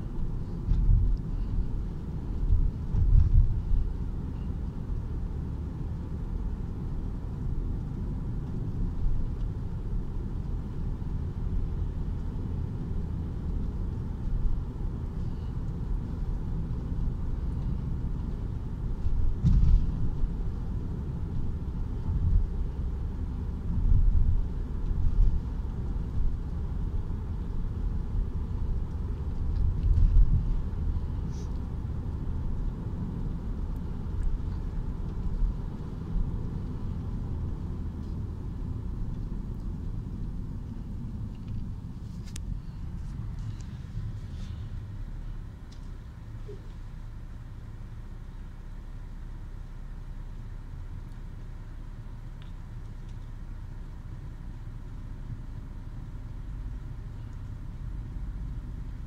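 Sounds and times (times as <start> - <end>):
car cabin road rumble: 0.0 - 59.0
car bumps: 19.4 - 20.0.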